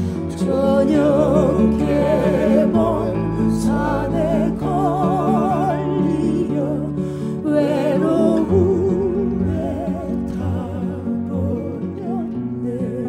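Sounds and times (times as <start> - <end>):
sustained accompaniment with bass: 0.0 - 13.0
woman singing with vibrato: 0.0 - 13.0.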